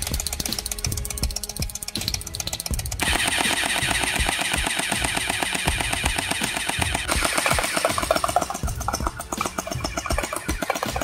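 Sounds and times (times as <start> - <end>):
gel blaster firing full-auto: 3.0 - 8.6.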